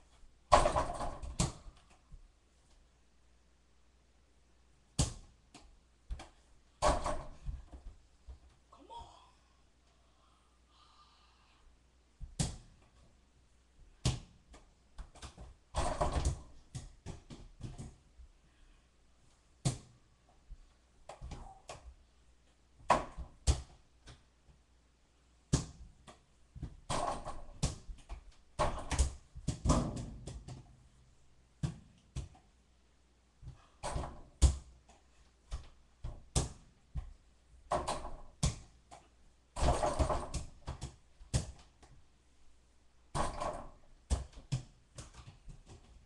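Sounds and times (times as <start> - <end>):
ball bouncing and knocking: 0.5 - 2.2, 5.0 - 8.6, 12.2 - 13.1, 13.9 - 18.0, 19.6 - 22.0, 22.8 - 24.6, 25.5 - 30.8, 31.6 - 32.5, 33.4 - 34.7, 35.4 - 42.0, 43.1 - 46.0.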